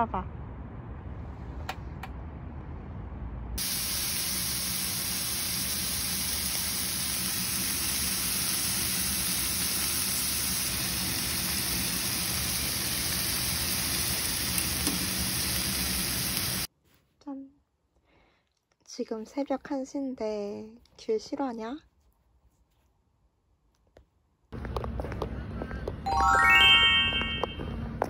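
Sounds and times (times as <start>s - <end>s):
meat sizzling in a pan: 3.6s - 16.7s.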